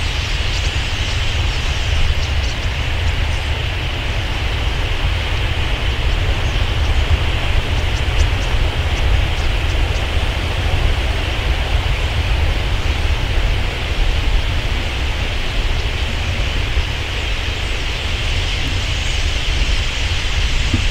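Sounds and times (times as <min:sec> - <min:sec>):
constant low rumble: 0:00.0 - 0:20.9
massed bird chatter: 0:00.0 - 0:20.9.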